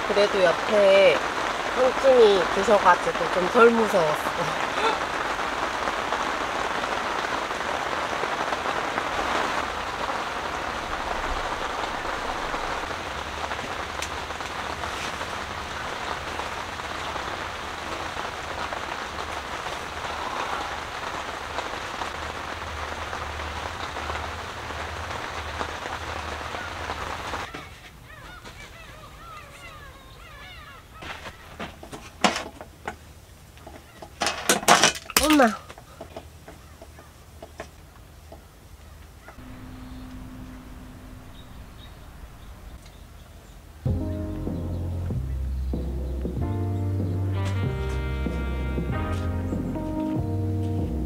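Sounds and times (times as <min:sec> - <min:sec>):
rain on tent fabric: 0:00.0 - 0:51.0
faint bird calls: 0:26.3 - 0:31.7, 0:33.6 - 0:34.2, 0:35.4 - 0:43.7.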